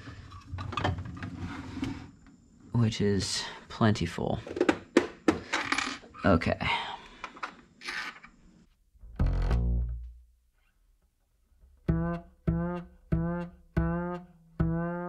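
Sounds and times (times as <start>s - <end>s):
background music plucked notes: 9.0s - 10.2s, 11.6s - 15.0s.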